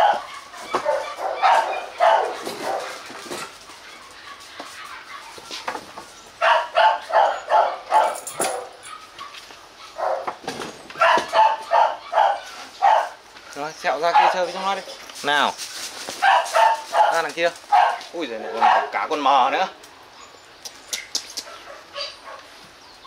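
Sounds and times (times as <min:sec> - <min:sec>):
dog barking: 0:00.0 - 0:03.0, 0:06.4 - 0:10.4, 0:11.0 - 0:13.2, 0:14.0 - 0:14.6, 0:16.2 - 0:19.0, 0:21.4 - 0:22.5.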